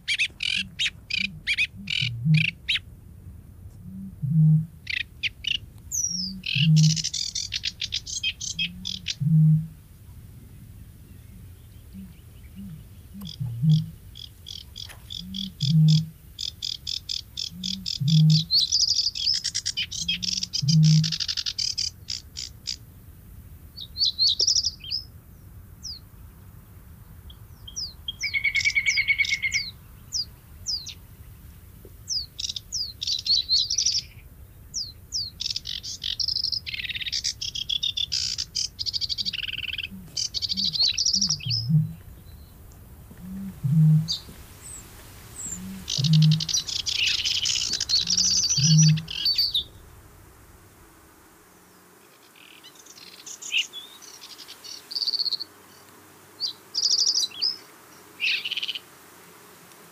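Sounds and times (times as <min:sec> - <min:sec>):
songbirds chattering and trilling: 0:00.0 - 0:58.9.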